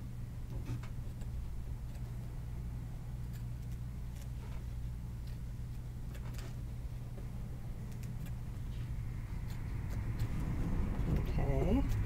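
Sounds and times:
steady low hum: 0.0 - 12.0
scissors snipping foam: 3.2 - 4.4.

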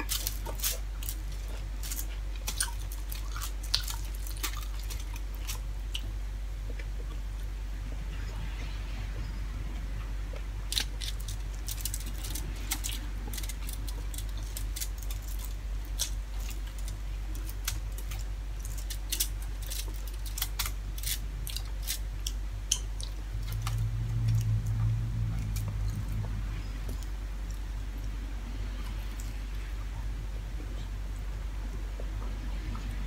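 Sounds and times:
fingers tearing at food on foil: 0.0 - 5.6, 10.7 - 24.8
steady low hum: 0.0 - 33.0.

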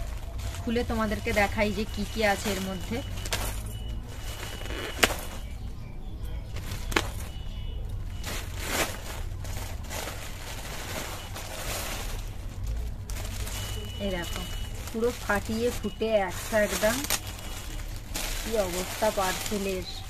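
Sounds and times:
plastic mailer tearing and crinkling: 0.0 - 5.6, 8.0 - 20.0
plastic wrap rustling: 0.0 - 5.8, 6.4 - 20.0.

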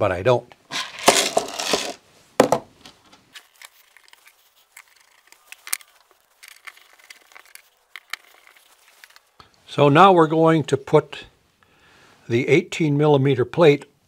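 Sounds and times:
handling rustle: 0.7 - 9.4
screwdriver and screws clicking: 3.4 - 9.3.

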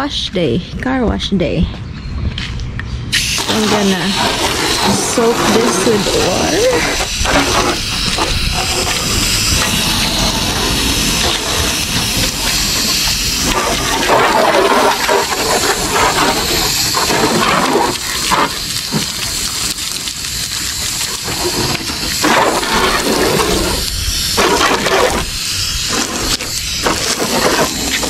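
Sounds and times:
hose water spraying on car: 3.1 - 28.0.

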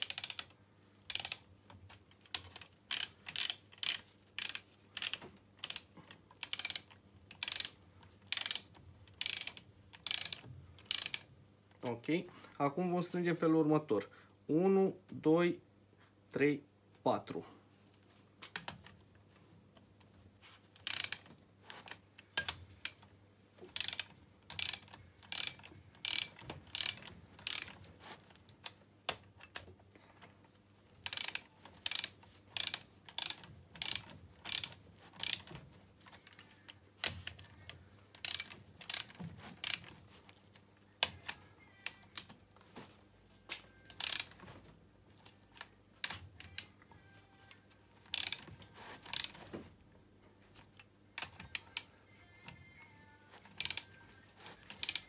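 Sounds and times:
torque wrench ratchet clicking: 0.0 - 0.5, 1.1 - 1.4, 2.9 - 11.2, 20.8 - 21.2, 23.8 - 27.8, 31.0 - 35.6, 38.2 - 39.9, 44.0 - 44.4, 48.1 - 48.5, 49.1 - 49.4, 53.6 - 53.9, 54.7 - 55.0.

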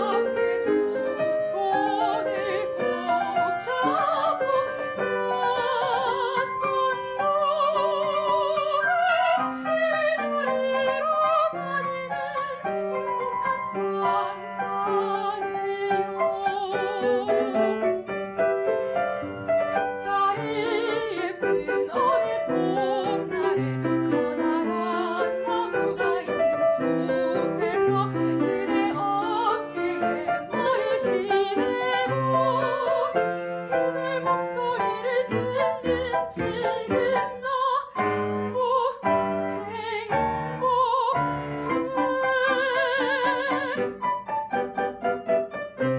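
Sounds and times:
soprano singing operatically: 0.0 - 45.0
piano accompaniment: 0.0 - 45.9.

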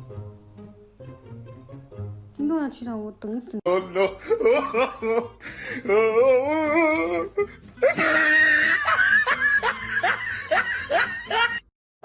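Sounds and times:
person laughing hard: 3.8 - 11.7.

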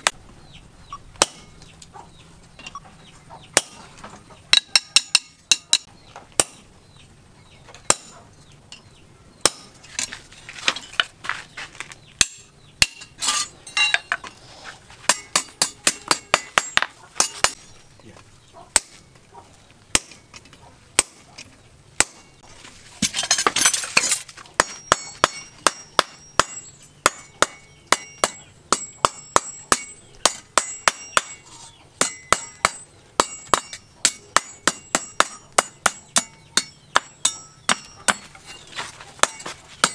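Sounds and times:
hammer striking steel on anvil: 4.5 - 6.6, 7.9 - 8.1, 8.7 - 9.8, 12.2 - 14.2, 15.1 - 17.6, 23.1 - 38.4, 39.2 - 39.9.

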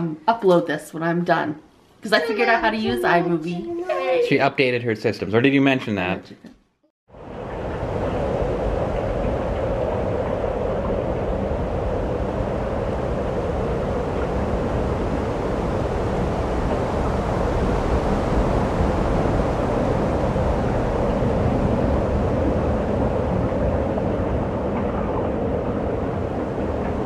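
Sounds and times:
strong blizzard wind: 7.1 - 27.0.

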